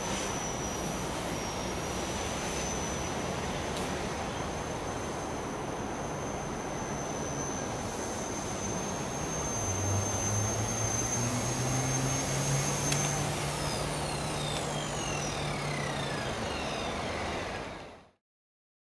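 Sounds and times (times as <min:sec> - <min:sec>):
helicopter motor and rotor whining: 0:00.0 - 0:18.1.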